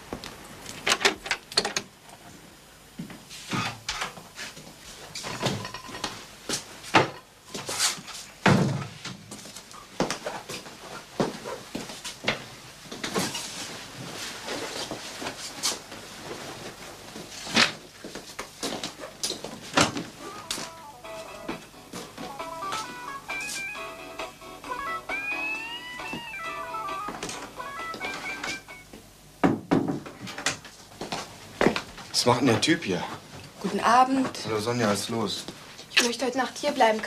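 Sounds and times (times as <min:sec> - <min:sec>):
footsteps in hallway: 0:30.8 - 0:32.1.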